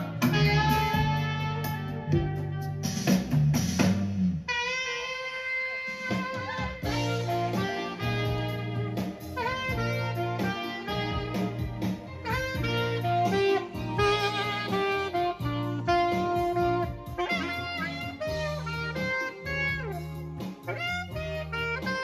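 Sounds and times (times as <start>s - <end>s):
saxophone playing jazzy melody: 0.0s - 3.6s, 4.3s - 22.0s
steady bass line: 0.0s - 22.0s
guitar accompaniment: 5.8s - 22.0s.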